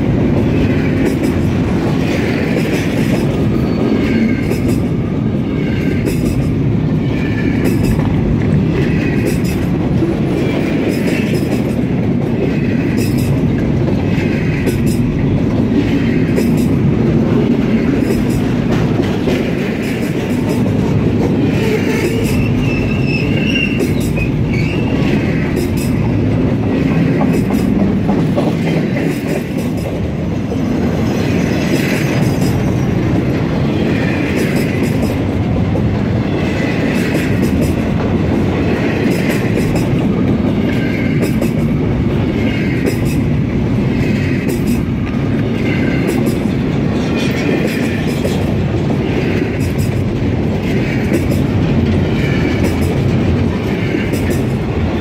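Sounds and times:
wheels clickety-clack: 0:00.0 - 0:05.0, 0:05.6 - 0:06.7, 0:07.3 - 0:55.0
train wheels rumbling on rails: 0:00.0 - 0:55.0
high wheel squeals: 0:21.6 - 0:25.1.

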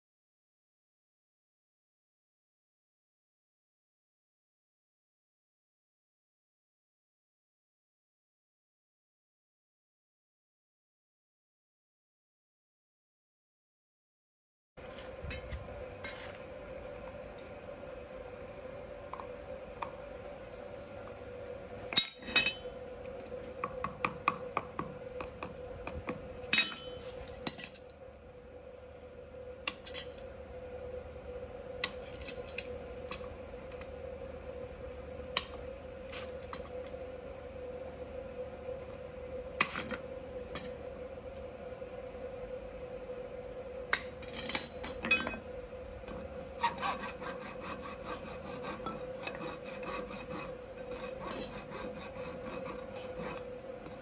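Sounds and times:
faint hum: 0:14.8 - 0:54.0.

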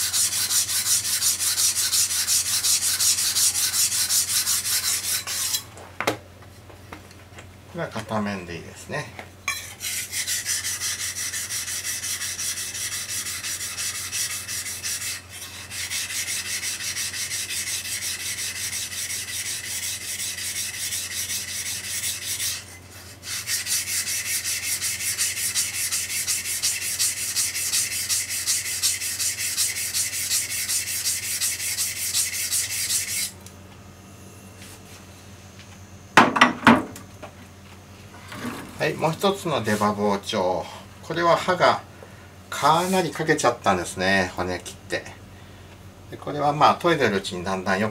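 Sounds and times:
knife rasping on whetstone: 0:00.0 - 0:05.6, 0:09.5 - 0:33.4.

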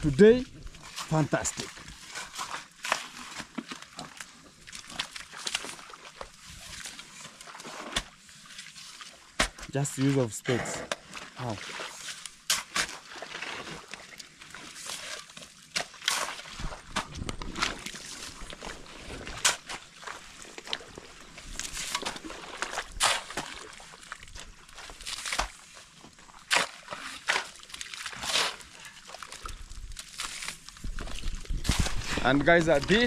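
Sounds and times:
mud sloshing and squelching: 0:00.0 - 0:33.0
spades cutting into mud: 0:12.4 - 0:13.7, 0:22.8 - 0:23.6, 0:26.4 - 0:28.7.

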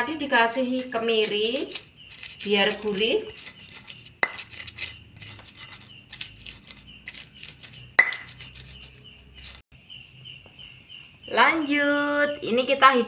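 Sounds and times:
pestle grinding in stone mortar: 0:00.0 - 0:09.6
ringing stone knock: 0:08.0 - 0:08.3.

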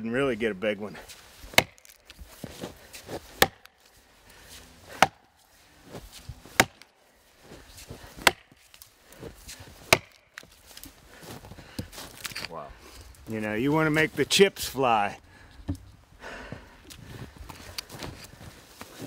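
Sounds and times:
axe chopping log: 0:01.5 - 0:03.8, 0:04.8 - 0:05.3, 0:06.4 - 0:06.9, 0:07.8 - 0:08.8, 0:09.5 - 0:10.5.

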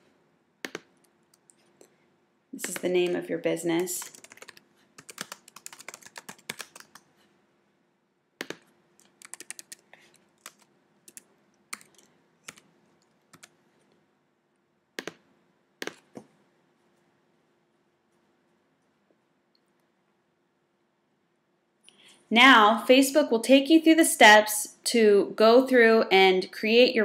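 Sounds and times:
typing on computer keyboard: 0:02.6 - 0:03.2, 0:03.8 - 0:07.1, 0:08.4 - 0:09.8, 0:10.4 - 0:12.7, 0:13.3 - 0:13.5.

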